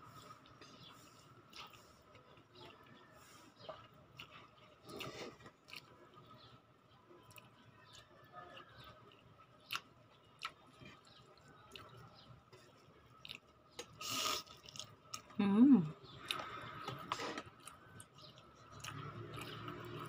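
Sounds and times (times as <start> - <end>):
chewing noodles: 0.1 - 20.0
noodle slurp: 14.0 - 14.6.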